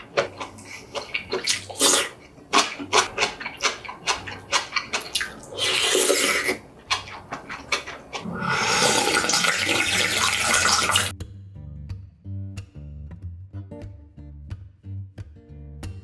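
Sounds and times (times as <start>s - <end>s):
chewing and mouth clicks: 0.0s - 9.2s
loud slurping of broth: 5.4s - 6.6s, 8.1s - 11.1s.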